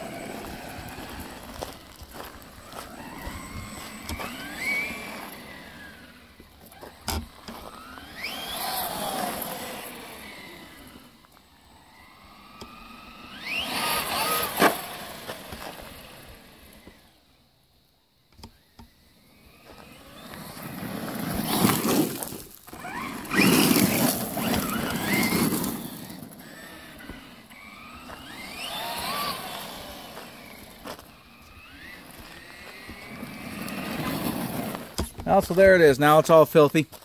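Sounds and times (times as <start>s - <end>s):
tyre noise on gravel: 0.0s - 17.1s, 19.3s - 37.0s
rc truck motor whining: 0.0s - 37.0s.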